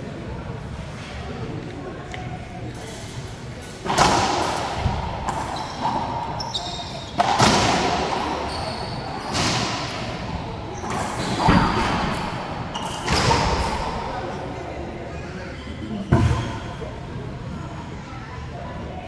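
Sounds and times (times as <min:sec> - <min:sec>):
ball smacking racquets and walls: 0:03.8 - 0:08.5
sneaker squeaks on hardwood: 0:05.4 - 0:07.5, 0:08.2 - 0:10.0, 0:10.7 - 0:13.9.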